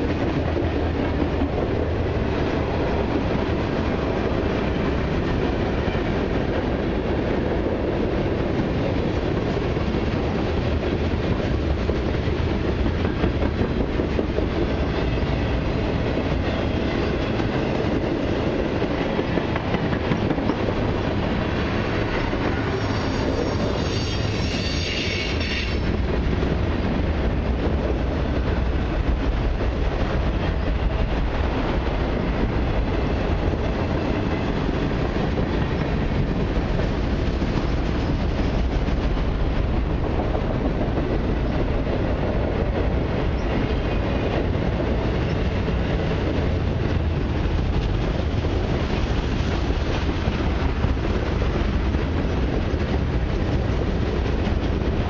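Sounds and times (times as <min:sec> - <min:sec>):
freight train wheels on rails: 0:00.0 - 0:55.0
high-pitched wheel squeal: 0:22.8 - 0:25.9.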